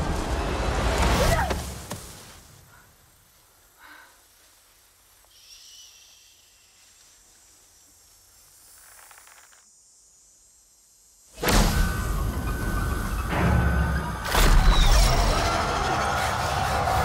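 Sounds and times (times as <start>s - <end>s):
soft rustle: 1.6s - 9.8s.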